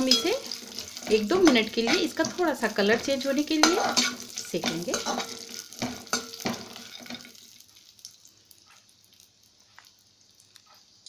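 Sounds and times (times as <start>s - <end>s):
spoon scraping and clinking in pan: 0.0s - 7.5s
faint sizzle with light ticks: 0.0s - 11.0s.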